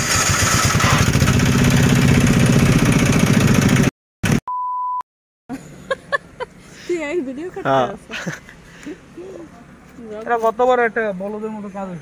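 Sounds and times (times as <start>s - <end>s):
engine running: 0.0s - 4.4s
short high beep: 4.5s - 5.0s.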